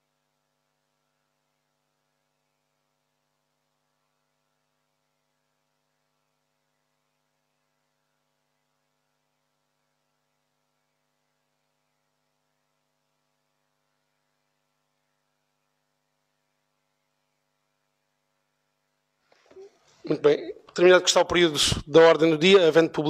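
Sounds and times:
faint electrical hum: 0.0 - 23.0.

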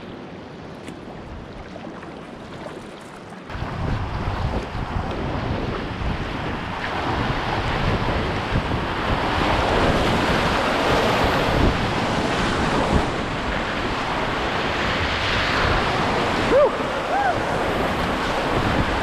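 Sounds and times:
wind buffeting microphone: 0.0 - 19.0
whitewater rapids rushing: 8.9 - 19.0.

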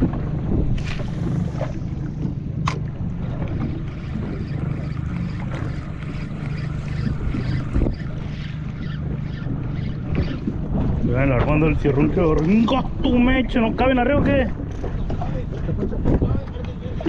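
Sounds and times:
low rumble of wind and water: 0.0 - 17.0
fishing rod cast swish: 0.8 - 2.0.

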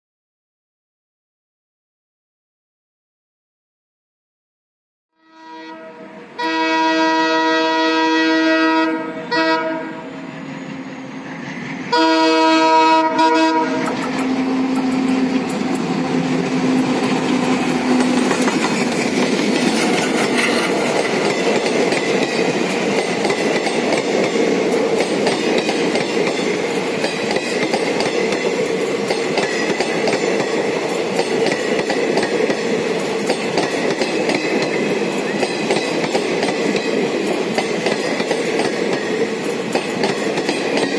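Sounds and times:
locomotive air horn blasts: 5.2 - 10.2, 11.9 - 15.4
train wheels clattering over rails: 13.7 - 40.9.

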